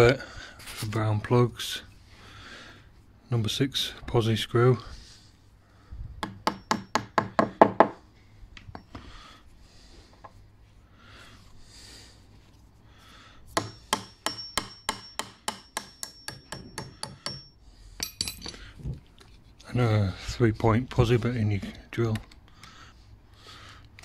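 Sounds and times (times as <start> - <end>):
hammer tapping on wood: 6.2 - 8.0, 13.6 - 17.5.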